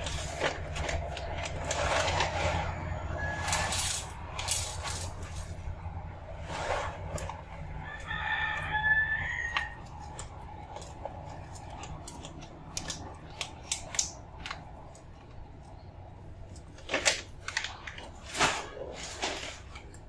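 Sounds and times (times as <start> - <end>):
plastic bag crinkling: 0.0 - 5.7, 16.6 - 20.0
rooster crowing: 2.7 - 4.1, 7.7 - 10.1.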